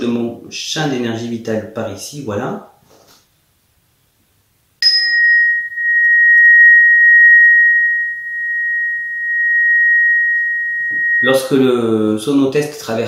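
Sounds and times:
high pure ringing tone: 4.8s - 12.8s.

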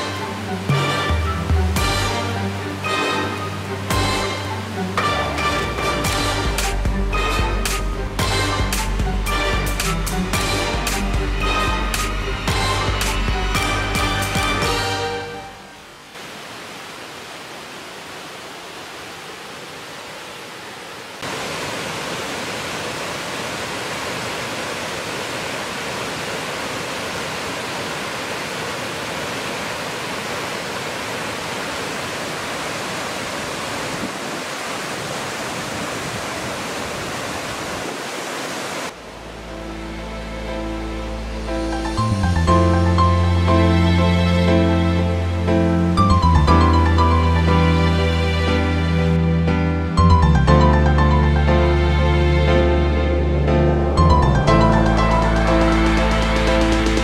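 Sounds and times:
music: 0.0s - 15.8s, 39.2s - 57.0s
waterfall rushing: 0.0s - 49.3s.

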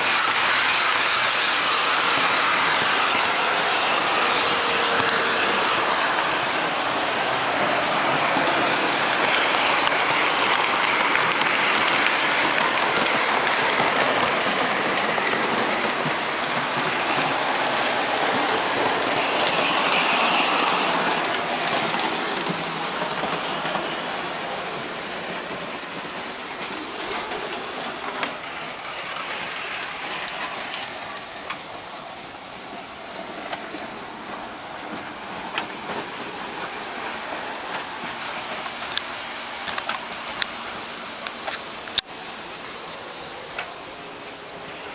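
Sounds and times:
model train wheels rattling: 0.0s - 31.6s.

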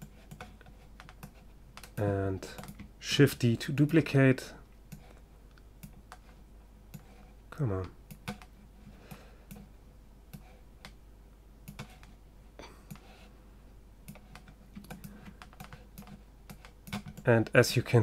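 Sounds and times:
computer mouse and keyboard clicks: 0.0s - 2.9s, 4.9s - 9.7s, 10.3s - 11.0s, 11.6s - 12.2s, 14.0s - 17.6s
steady low hum: 0.0s - 18.0s.

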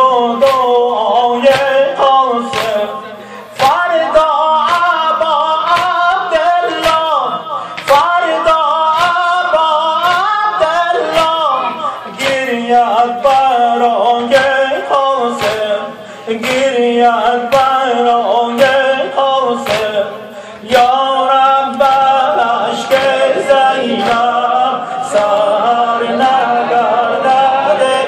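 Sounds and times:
men singing a chant: 0.0s - 28.0s
chest-beating slaps: 2.5s - 2.8s, 5.6s - 6.0s, 12.2s - 12.6s, 15.4s - 15.8s, 16.4s - 16.7s, 19.6s - 20.0s.

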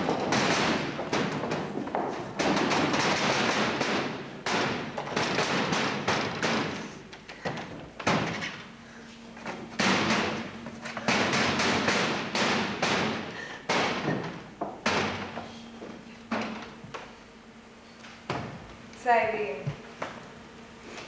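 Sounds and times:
feet stamping on wooden floor: 0.0s - 3.1s.

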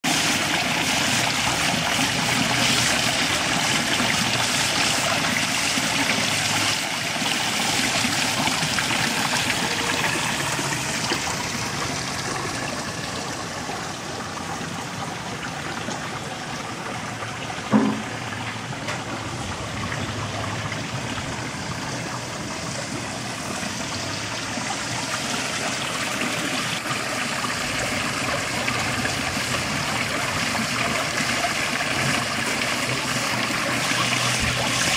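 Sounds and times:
water pouring into a pool: 0.0s - 34.9s
short thump: 17.7s - 18.1s.

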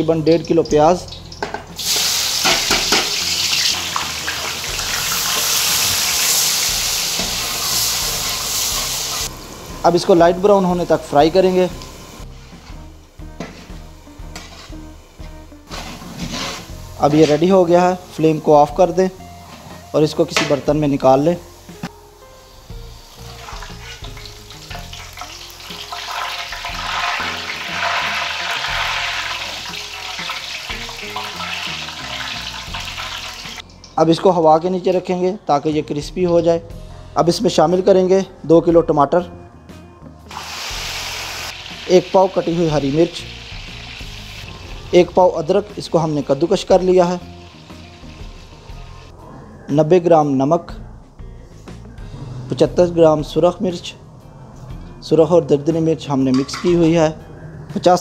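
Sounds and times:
onions sizzling in hot oil: 1.0s - 19.8s, 20.7s - 33.8s, 40.3s - 49.1s.

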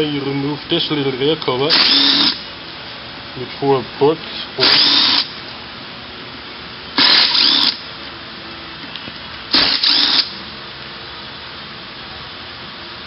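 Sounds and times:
cordless drill whirring: 1.7s - 2.4s, 4.6s - 5.3s, 7.0s - 7.8s, 9.5s - 10.4s.

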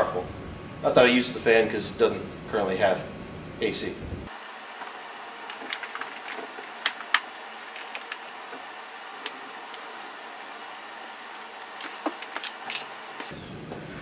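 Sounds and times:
room noise hiss: 0.0s - 14.0s
plastic parts clicking: 5.4s - 8.6s, 11.6s - 13.3s.

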